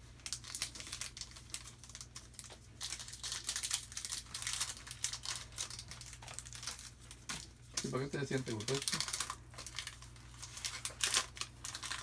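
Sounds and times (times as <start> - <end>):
foil wrapper crinkling and tearing: 0.0 - 12.0.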